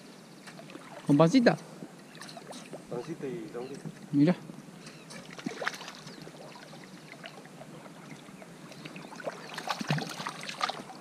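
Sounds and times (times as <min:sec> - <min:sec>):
fish splashing in water: 0:05.2 - 0:07.6, 0:08.8 - 0:11.0.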